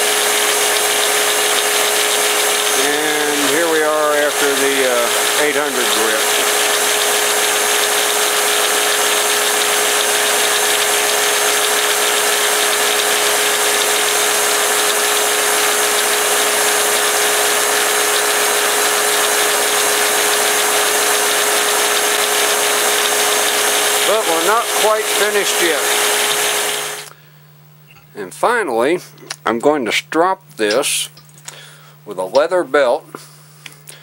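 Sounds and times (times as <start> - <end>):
belt grinder running: 0.0 - 27.1.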